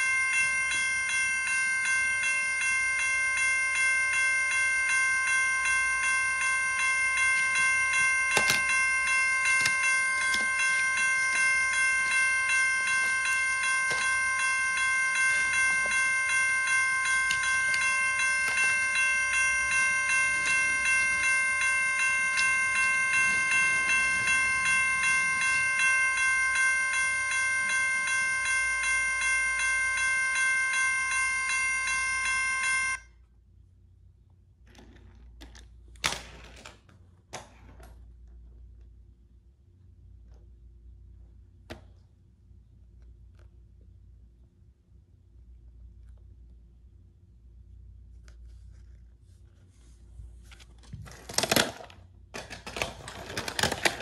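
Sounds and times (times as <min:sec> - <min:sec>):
railroad crossing bell ringing: 0:00.0 - 0:33.0.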